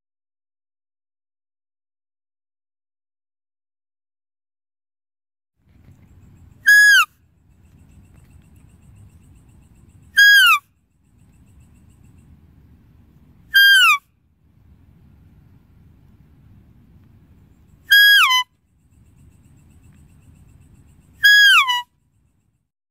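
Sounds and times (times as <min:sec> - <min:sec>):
deer whistle call: 0:06.6 - 0:07.1, 0:10.2 - 0:10.6, 0:13.5 - 0:14.0, 0:17.8 - 0:18.5, 0:21.2 - 0:21.9
faint low rumble: 0:10.8 - 0:17.9.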